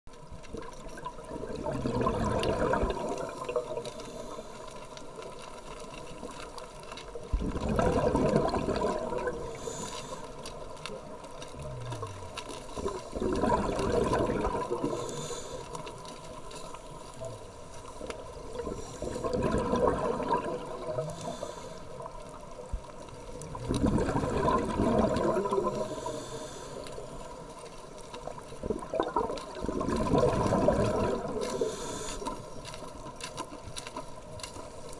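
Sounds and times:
exhaled bubbles gurgling: 0.2s - 34.9s
regulator inhalation hiss: 9.4s - 10.4s, 14.8s - 15.8s, 21.0s - 22.1s, 25.7s - 27.4s, 31.5s - 32.4s.

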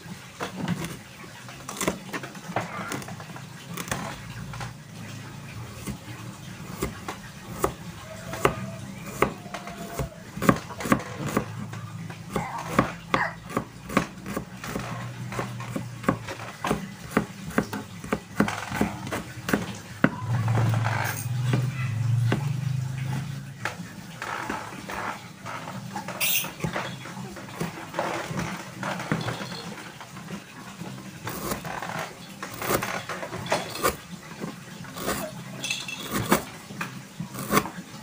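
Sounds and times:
knife chopping on plastic board: 5.7s - 6.0s, 6.6s - 11.7s, 12.3s - 22.6s, 31.3s - 31.7s, 32.5s - 32.9s, 33.6s - 34.0s, 35.0s - 35.2s, 36.0s - 36.5s, 37.4s - 37.7s.

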